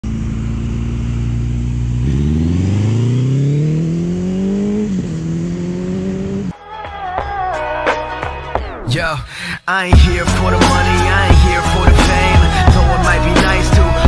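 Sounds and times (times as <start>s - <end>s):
motorcycle engine revving: 0.0s - 6.6s.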